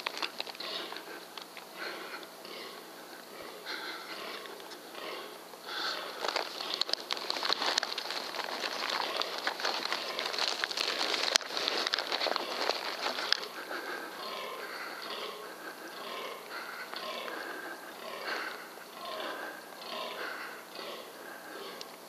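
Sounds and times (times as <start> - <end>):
dry leaves and twigs rustling: 0.0 - 21.6.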